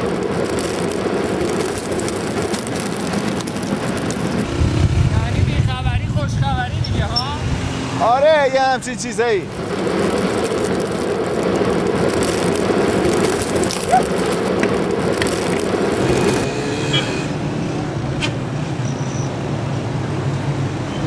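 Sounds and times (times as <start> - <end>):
motorcycle engine running: 0.0 - 6.1, 9.4 - 17.2
street traffic hum: 0.0 - 21.0.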